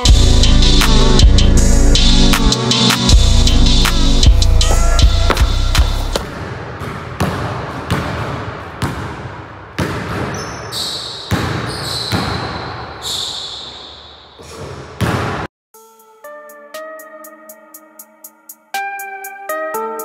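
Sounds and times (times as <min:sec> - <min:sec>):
basketball bouncing on wooden floor: 0:05.1 - 0:10.6, 0:11.3 - 0:12.6
sneaker squeaks on floor: 0:09.8 - 0:15.4.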